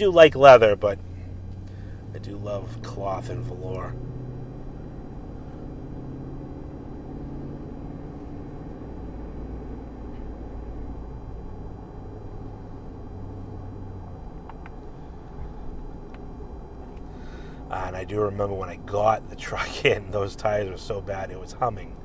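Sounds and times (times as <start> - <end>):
engine drone: 0.0 - 22.0
road noise: 0.0 - 22.0.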